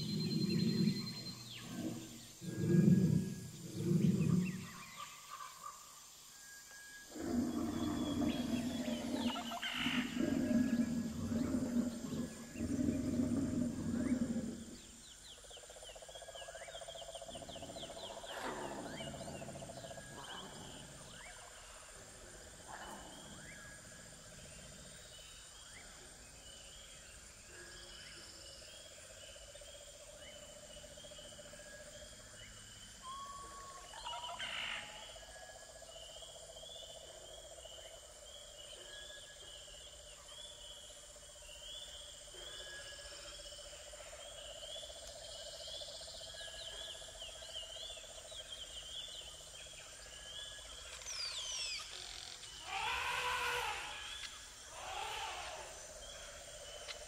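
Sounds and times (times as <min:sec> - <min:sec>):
animal low calls: 0:00.0 - 0:05.0
loud sustained animal call: 0:52.1 - 0:56.3.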